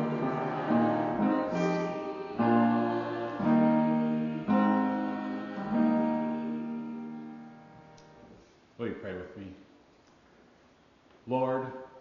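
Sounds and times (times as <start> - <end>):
soft instrumental chords: 0.0 - 8.4.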